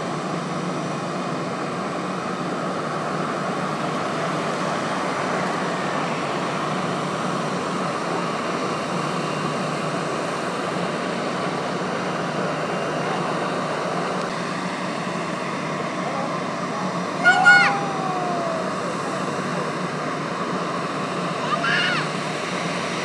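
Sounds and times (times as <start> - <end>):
jet engines idling: 0.0 - 23.0.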